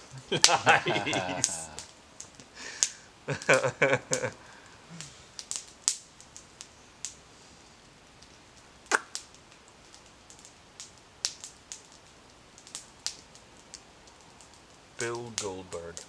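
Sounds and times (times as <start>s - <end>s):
campfire wood crackling and popping: 0.0s - 16.0s.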